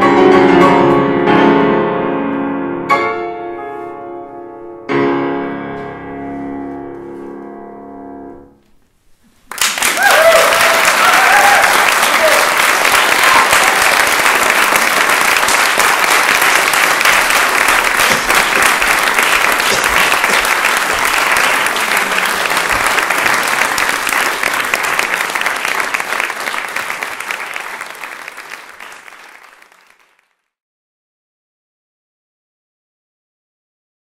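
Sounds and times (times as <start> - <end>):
audience applauding: 9.5 - 30.4.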